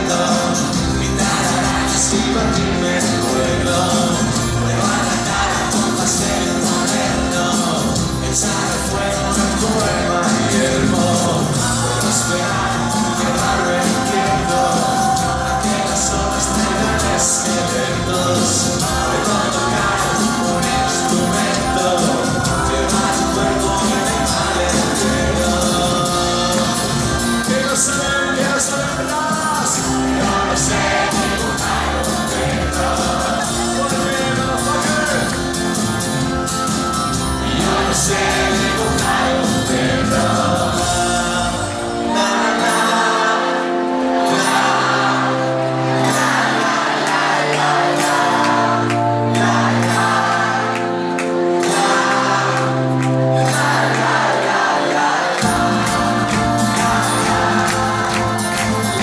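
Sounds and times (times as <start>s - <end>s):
person singing: 0.0s - 36.0s, 37.4s - 45.2s
held keyboard chords: 0.0s - 59.0s
live pop-rock band: 0.0s - 59.0s.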